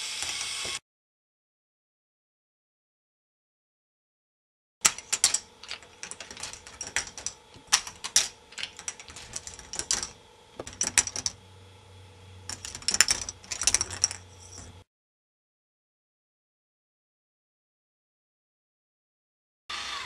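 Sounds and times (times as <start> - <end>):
plastic balls clattering on track: 4.8 - 11.4, 12.5 - 14.8
low steady hum: 4.8 - 14.9.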